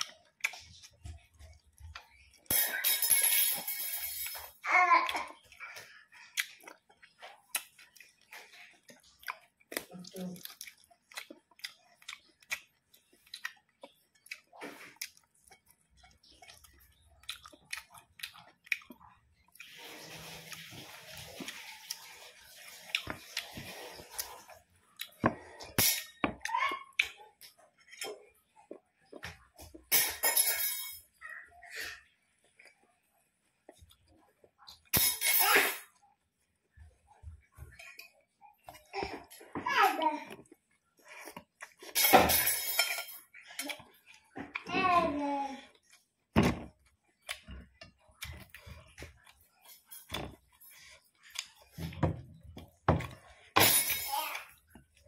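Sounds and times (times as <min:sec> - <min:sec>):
chewing crispy fried chicken: 0:00.0 - 0:02.5, 0:05.0 - 0:25.6, 0:45.6 - 0:53.5.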